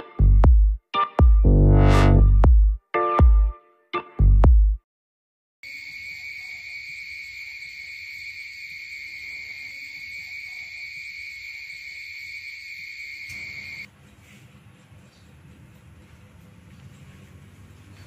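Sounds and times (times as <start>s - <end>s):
crickets chirping: 5.6s - 13.9s.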